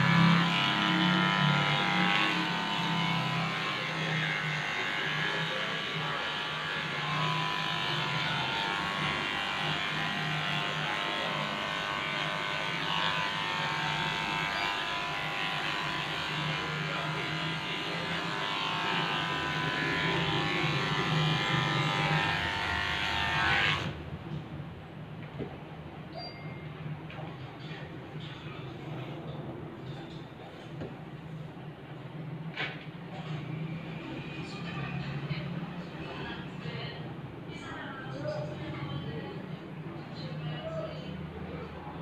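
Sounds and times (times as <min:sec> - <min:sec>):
electric clippers buzzing: 0:00.0 - 0:24.0.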